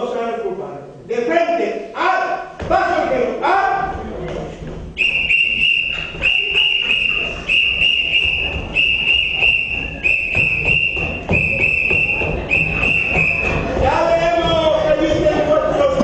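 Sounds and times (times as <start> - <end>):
feet stamping: 4.2 - 16.0
whistle short blasts: 5.0 - 13.6.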